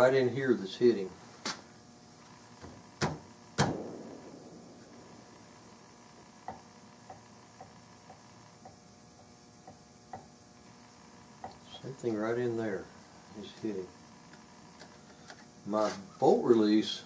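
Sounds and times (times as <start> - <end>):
sharp knock of rifle action: 3.0 - 5.8.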